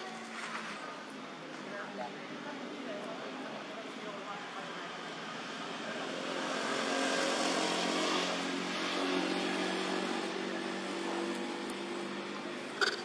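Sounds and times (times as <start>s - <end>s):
engine humming: 6.6s - 13.0s.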